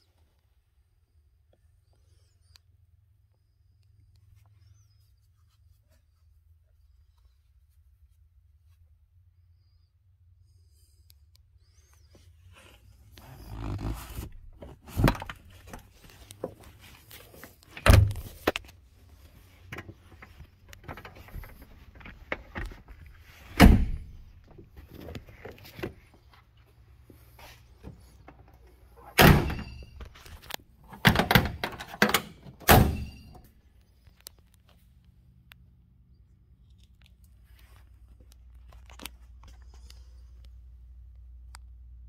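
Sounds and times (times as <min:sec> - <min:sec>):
rustling handling: 0:12.1 - 0:29.0
car seats thunking and latching: 0:13.2 - 0:16.6, 0:20.8 - 0:24.3.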